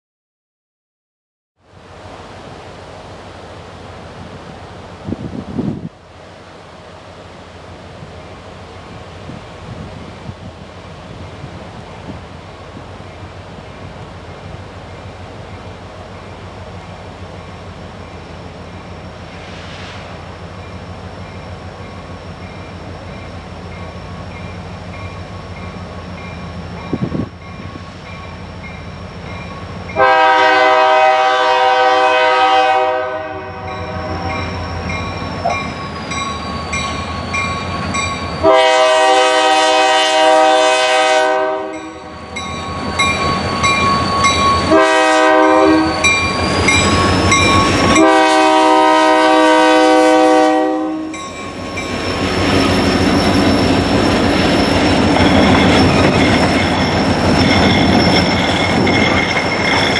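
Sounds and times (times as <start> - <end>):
diesel locomotive engine: 1.6 - 59.9
train wheels on rails: 1.7 - 59.9
locomotive horn blasts: 30.0 - 34.5, 38.4 - 42.1, 44.6 - 46.2, 47.8 - 51.2.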